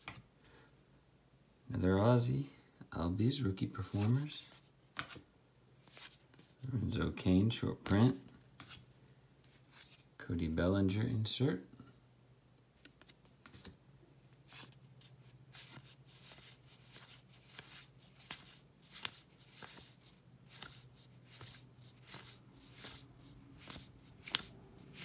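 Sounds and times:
cards sliding with paper swishes: 3.8s - 5.2s, 5.8s - 6.6s, 8.4s - 10.1s, 12.8s - 25.0s.

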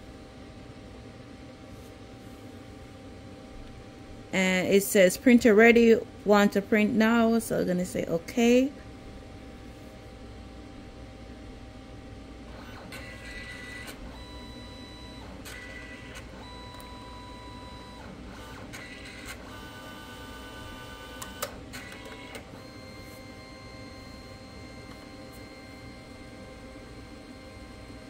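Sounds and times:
printer motors whirring: 12.5s - 28.0s.

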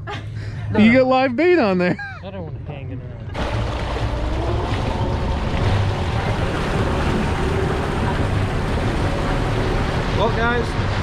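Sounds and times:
outboard motor running: 3.3s - 11.0s
water washing past hull: 3.4s - 11.0s.

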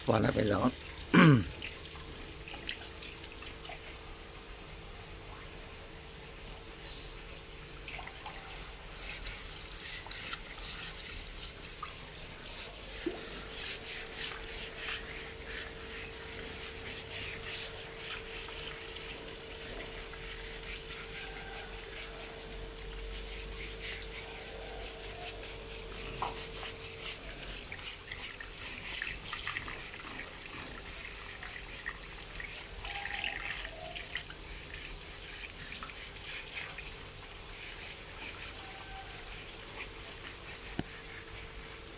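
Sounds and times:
plastic brush scrubbing wet skin: 0.0s - 0.8s, 8.3s - 41.9s
water running over concrete: 0.0s - 4.0s, 7.7s - 41.9s.

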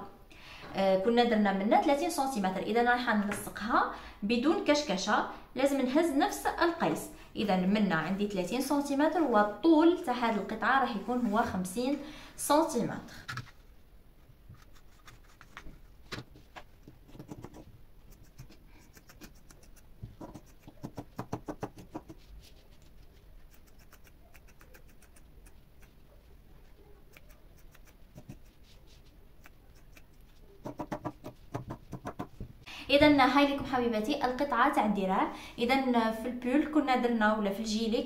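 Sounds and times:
scissors snipping fabric: 17.1s - 22.2s, 23.4s - 26.0s, 27.0s - 28.6s, 29.4s - 32.1s.

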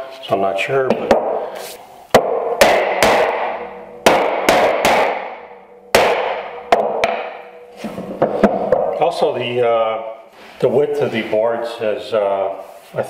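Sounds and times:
mallet knocking on iron: 2.2s - 9.0s.

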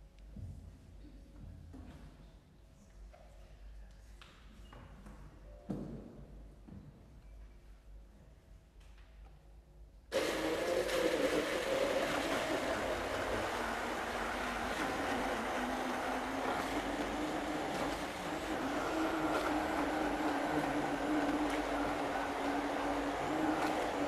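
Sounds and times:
hand blender whirring: 10.1s - 24.0s.

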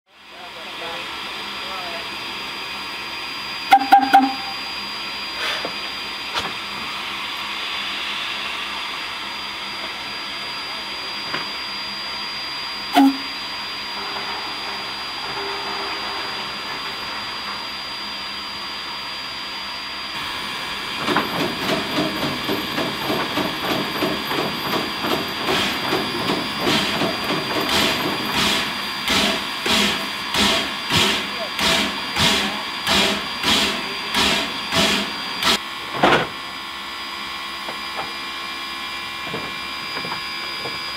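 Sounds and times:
rhythmic locomotive steam puffs: 0.2s - 40.9s
steam hissing: 6.7s - 10.4s, 20.2s - 35.6s.

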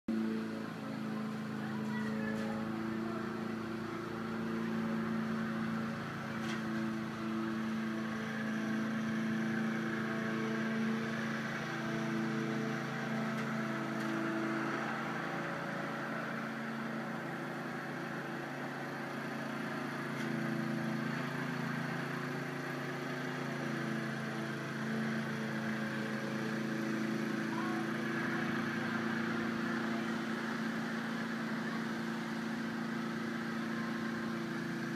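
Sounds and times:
lawn mower engine running: 0.1s - 34.9s.

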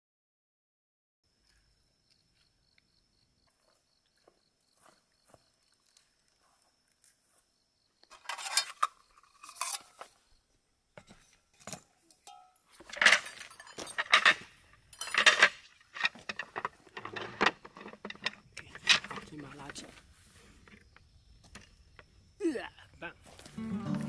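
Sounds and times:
metal camping cups clinking: 8.1s - 10.1s, 12.1s - 19.8s.

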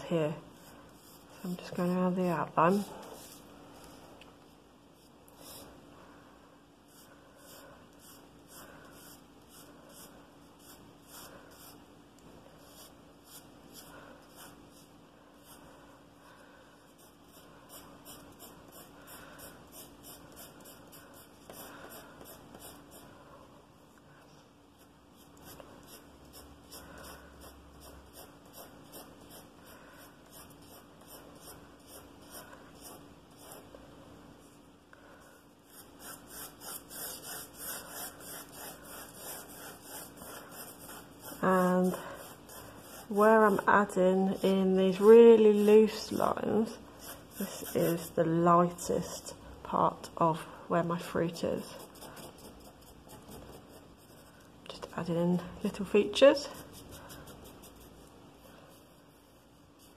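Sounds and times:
pencil scratching on paper: 0.2s - 3.4s, 6.9s - 11.9s, 12.6s - 15.7s, 16.9s - 23.2s, 24.8s - 33.8s, 35.6s - 48.4s, 51.4s - 54.5s, 55.7s - 58.1s, 58.7s - 59.9s.

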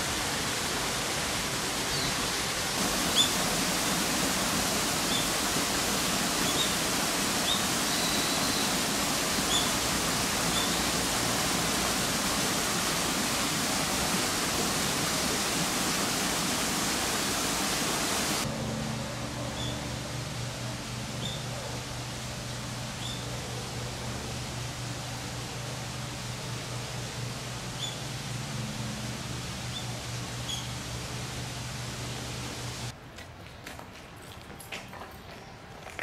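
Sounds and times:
water falling into pond: 0.0s - 18.5s.

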